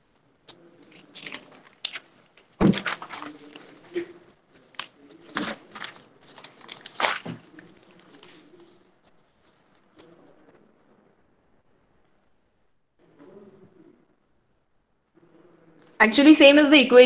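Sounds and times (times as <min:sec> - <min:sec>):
paper rustling: 0:00.5 - 0:10.2.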